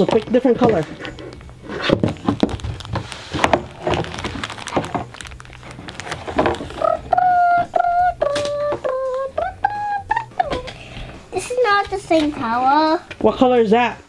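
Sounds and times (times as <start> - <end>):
plastic wrapping crinkling: 0.0 - 8.6
person humming: 6.5 - 10.9.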